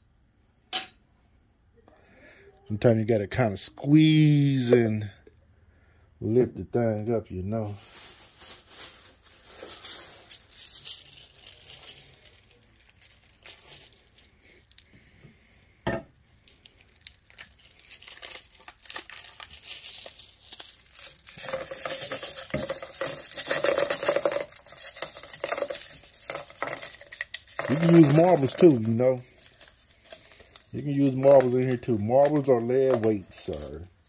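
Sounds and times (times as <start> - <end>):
plastic bags crinkling: 7.6 - 15.0, 16.3 - 34.0.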